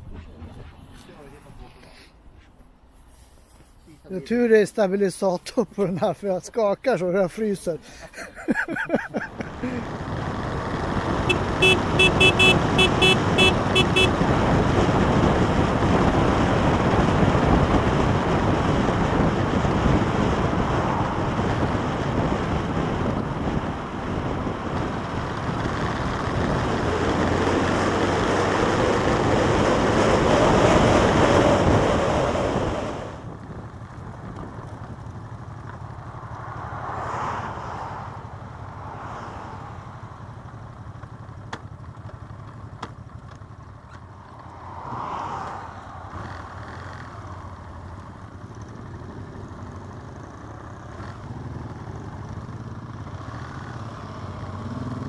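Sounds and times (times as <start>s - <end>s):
road noise: 0.0s - 55.0s
motorcycle engine: 8.8s - 55.0s
wind rushing over microphone: 14.0s - 35.3s.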